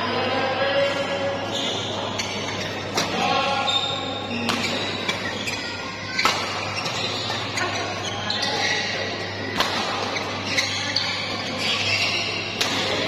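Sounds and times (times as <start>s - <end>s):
crowd murmur: 0.0s - 13.0s
rackets striking shuttlecock: 4.4s - 5.4s, 6.2s - 7.4s, 9.5s - 10.2s, 12.5s - 13.0s.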